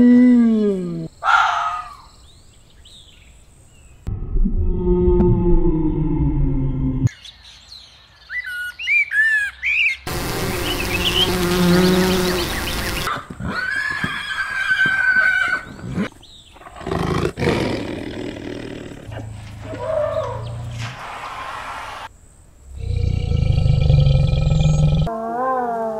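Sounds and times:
horse whinnying: 13.4s - 16.1s
tiger roaring: 15.8s - 20.8s, 22.7s - 25.1s.

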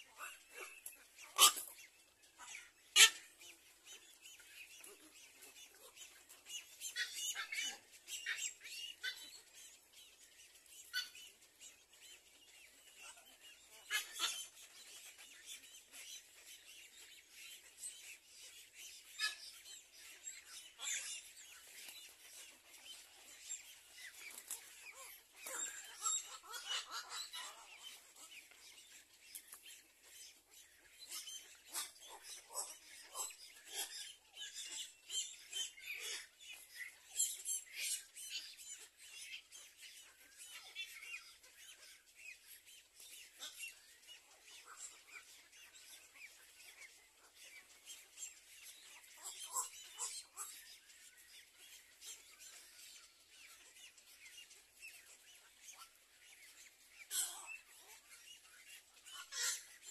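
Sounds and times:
faint bird chatter: 0.0s - 59.9s
harsh bird calls and chirps: 0.0s - 59.9s.

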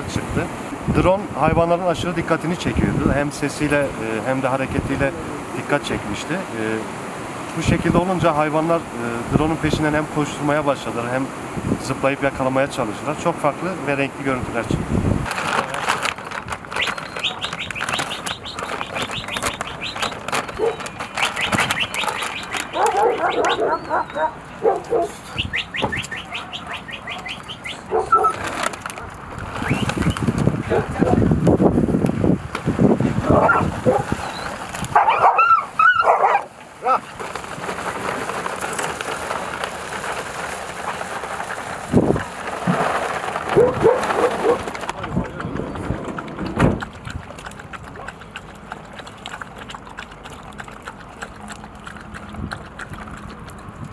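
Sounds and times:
dogs clicking and ticking: 15.3s - 31.2s, 43.3s - 53.9s
dogs whining and yelping: 16.7s - 28.4s, 33.3s - 36.5s, 43.6s - 44.6s.

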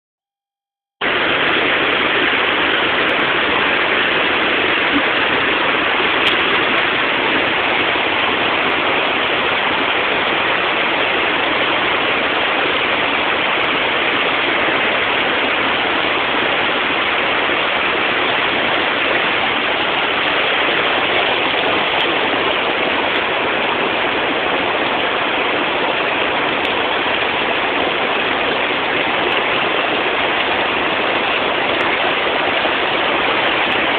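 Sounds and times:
stream running over rocks: 1.0s - 33.9s.

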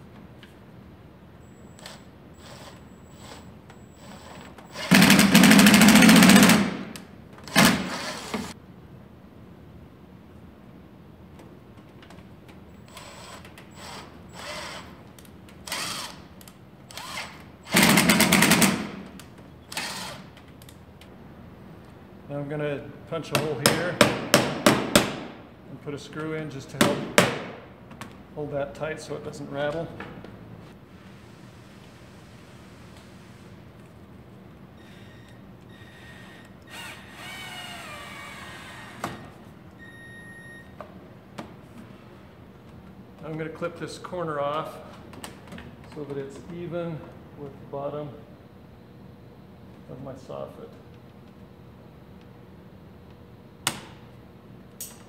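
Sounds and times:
cordless drill whining: 1.8s - 5.1s, 7.5s - 8.5s, 12.9s - 14.9s, 15.7s - 16.2s, 16.9s - 17.8s, 19.7s - 20.3s, 34.8s - 39.3s.

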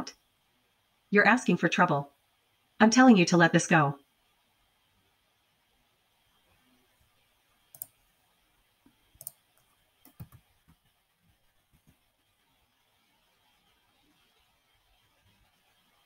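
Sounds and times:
computer keyboard and mouse clicks: 7.7s - 8.0s, 9.2s - 10.8s.

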